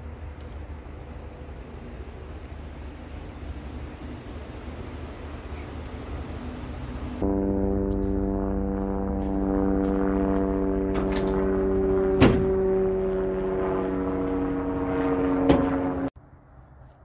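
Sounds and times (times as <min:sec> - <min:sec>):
outdoor background rumble and hiss: 0:00.0 - 0:07.3
droning hum: 0:00.0 - 0:16.2.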